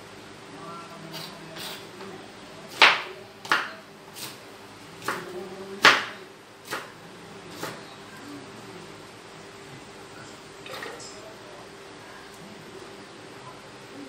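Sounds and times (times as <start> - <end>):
knife chopping on cutting board: 2.7 - 4.4, 5.8 - 6.9.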